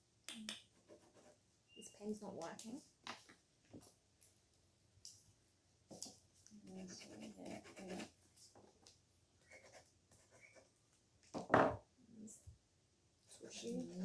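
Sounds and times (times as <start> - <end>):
pen scratching on paper: 6.7 - 8.2, 9.5 - 10.7.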